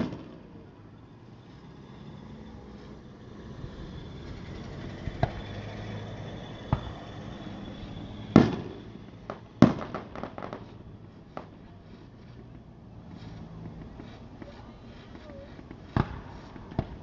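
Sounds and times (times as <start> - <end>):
firework booms: 0.0 - 0.6, 6.6 - 7.3, 8.3 - 11.7, 15.3 - 17.0
firework crackling: 0.0 - 17.0.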